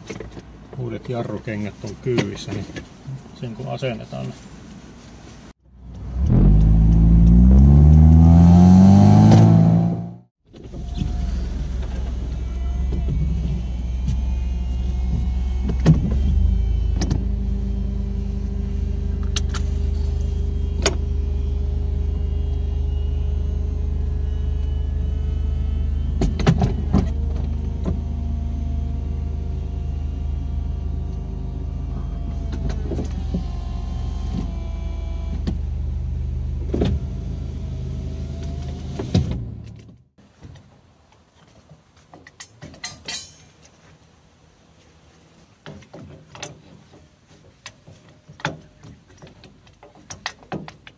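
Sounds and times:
road noise inside car: 0.0s - 41.0s
car engine: 5.6s - 40.1s.

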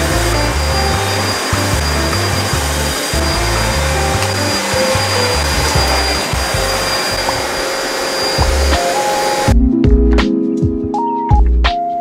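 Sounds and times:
vacuum cleaner running: 0.0s - 9.6s
background music: 0.0s - 12.0s.

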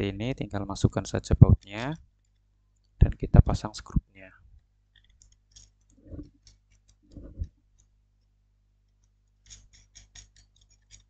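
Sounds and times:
small clicks of screws handled: 4.9s - 7.2s, 8.9s - 11.0s.

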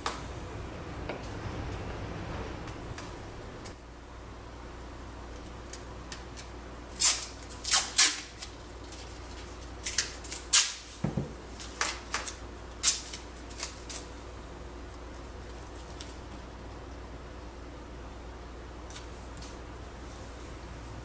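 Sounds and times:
tape ripping: 6.4s - 10.9s, 11.7s - 14.1s.

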